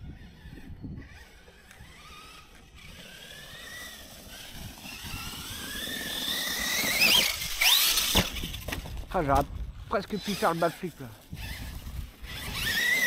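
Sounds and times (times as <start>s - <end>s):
toy truck electric motor whining: 0.0s - 9.0s, 9.9s - 13.0s.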